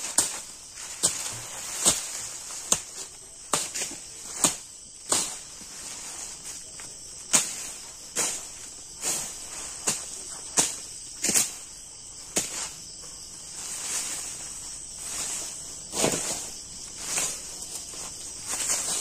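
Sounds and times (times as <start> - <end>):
sticks snapping and brush rustling: 0.0 - 5.7
crickets chirring: 0.0 - 19.0.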